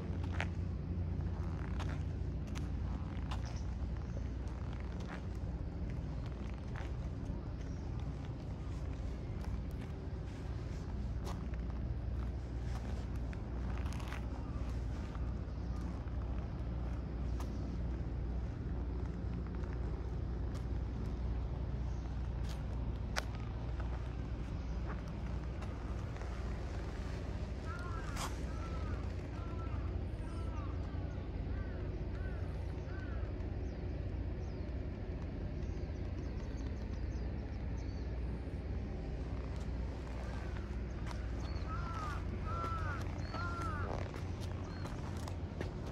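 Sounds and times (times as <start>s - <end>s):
low engine rumble: 0.0s - 45.9s.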